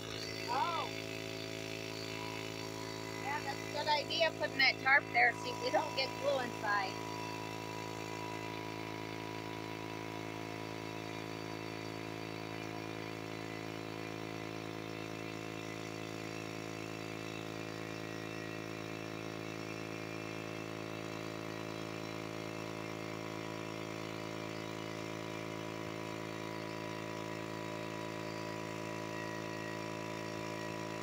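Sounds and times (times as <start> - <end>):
air compressor humming: 0.0 - 31.0.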